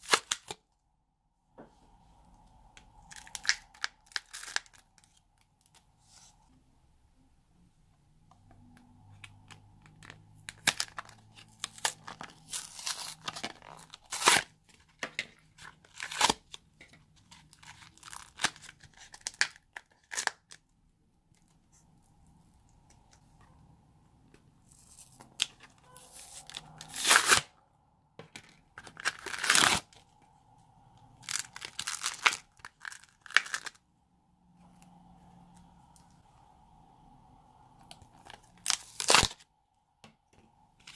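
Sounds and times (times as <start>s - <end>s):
foam beads crackling and crunching: 3.0s - 5.1s, 31.2s - 33.8s, 38.2s - 39.4s.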